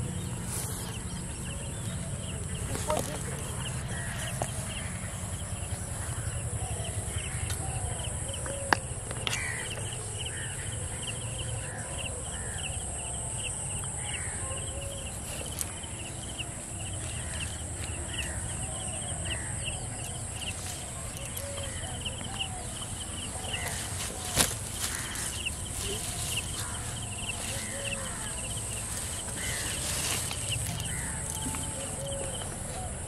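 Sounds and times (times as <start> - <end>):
bird calls: 0.0 - 33.0
insects shrilling: 19.2 - 32.7.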